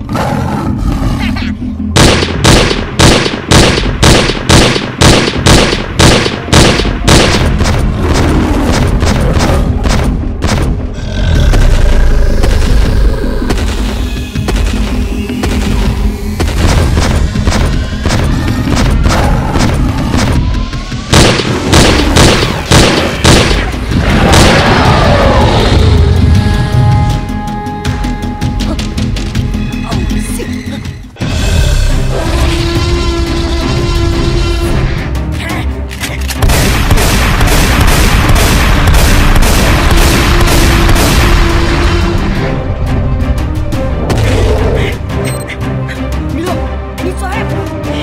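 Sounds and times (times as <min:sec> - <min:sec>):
music: 0:00.0 - 0:48.0
loud sharp bangs: 0:02.0 - 0:11.0, 0:21.1 - 0:24.9, 0:36.4 - 0:42.1
low rumble: 0:07.0 - 0:27.4.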